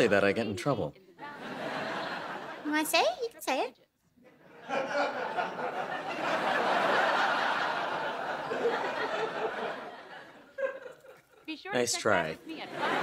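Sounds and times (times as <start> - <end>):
audience laughing: 1.2 - 2.7, 4.2 - 11.5, 12.4 - 13.0.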